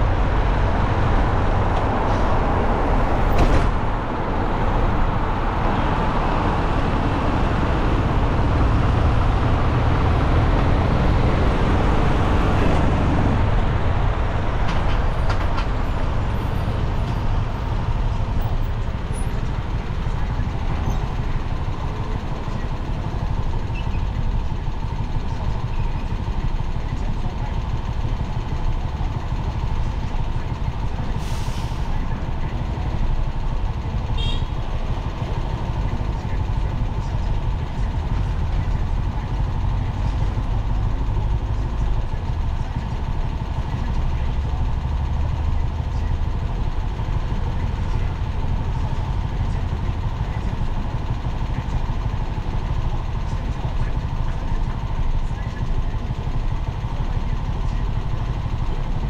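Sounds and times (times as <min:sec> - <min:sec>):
city road traffic rumble: 0:00.0 - 0:59.0.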